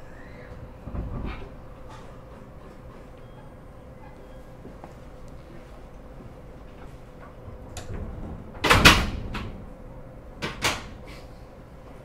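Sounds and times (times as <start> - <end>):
train hum: 0.0 - 12.0
train door clunk: 7.2 - 9.7.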